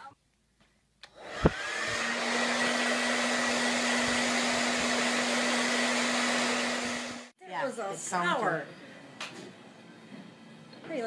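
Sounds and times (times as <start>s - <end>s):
appliance motor whining: 1.1s - 7.3s.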